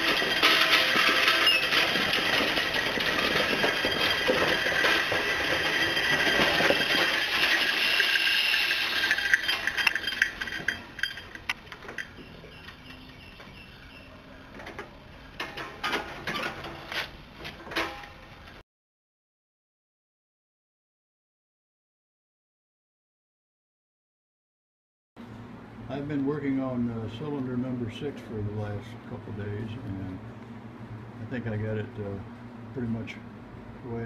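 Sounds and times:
metal clinks and knocks: 0.0s - 13.4s.

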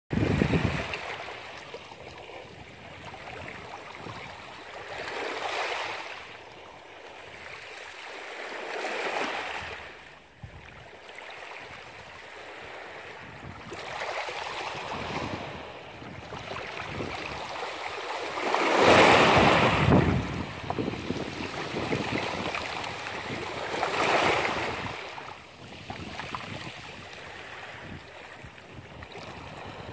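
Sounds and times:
small waves washing over rocks: 11.0s - 29.9s.

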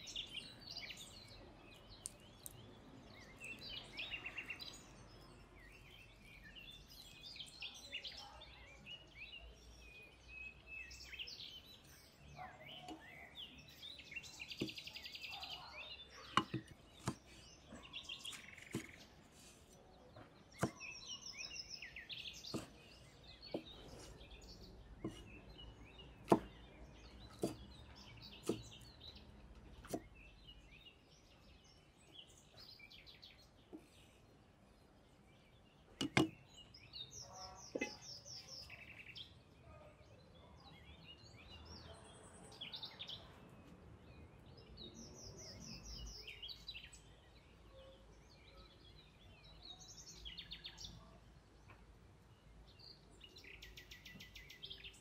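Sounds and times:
small birds chirping: 0.0s - 55.0s
cleaver striking wooden chopping board: 16.3s - 17.3s, 20.6s - 20.8s, 22.5s - 22.8s, 26.2s - 26.6s, 27.4s - 27.6s, 28.4s - 28.7s, 29.8s - 30.1s, 36.0s - 36.4s.

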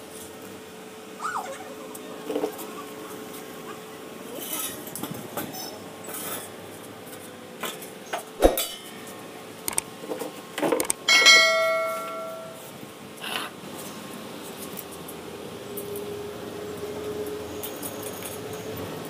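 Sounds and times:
steel tubes knocking and clattering: 8.4s - 8.9s, 11.1s - 12.6s
metal clang with bell-like ring: 11.1s - 12.7s.

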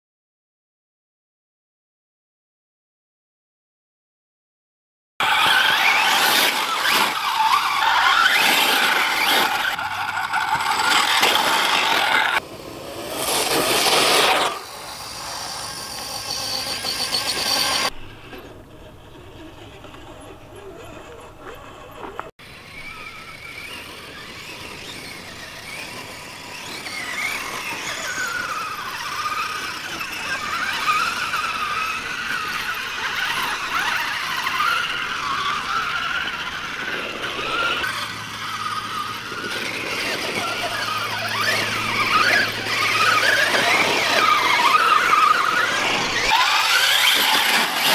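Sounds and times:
electric motors whining: 5.2s - 47.9s.

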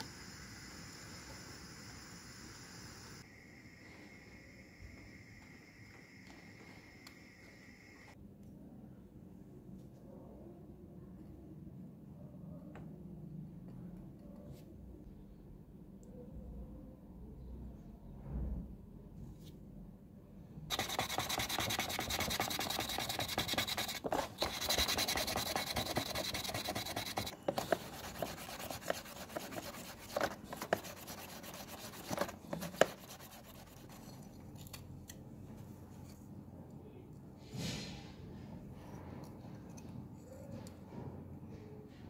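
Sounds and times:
sanding plastic: 20.7s - 34.2s.

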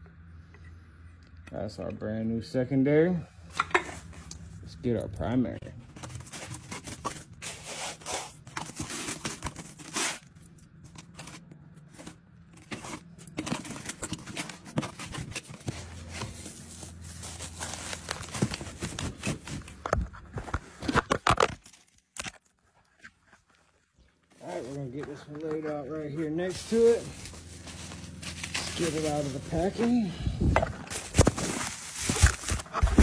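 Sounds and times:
cardboard scraping: 5.7s - 21.6s, 24.4s - 33.0s
cardboard box rummaged through: 5.8s - 10.3s, 10.9s - 21.8s, 24.4s - 33.0s
packing tearing and crinkling: 5.8s - 30.1s, 30.8s - 33.0s.

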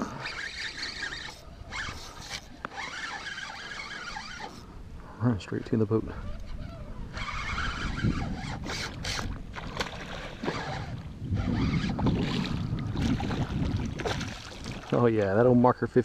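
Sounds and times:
wind buffeting microphone: 5.6s - 16.0s.

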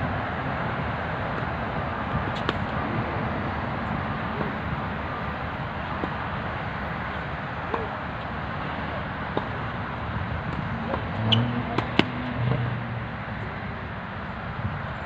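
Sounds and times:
tennis balls struck by rackets: 2.1s - 2.8s, 5.9s - 6.4s, 7.1s - 8.4s, 9.1s - 12.7s.

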